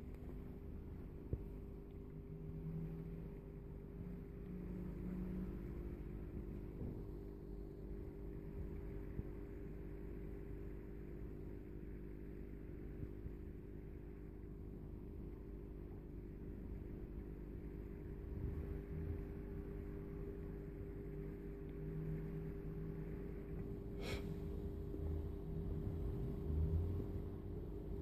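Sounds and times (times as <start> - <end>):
aquarium pump humming: 0.0 - 28.0
low tone rising in pitch: 2.1 - 6.4.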